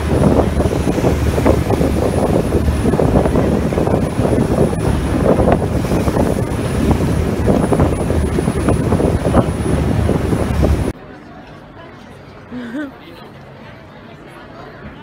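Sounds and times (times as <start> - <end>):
motorboat engine drone: 0.0 - 10.9
rushing wake water: 0.0 - 11.0.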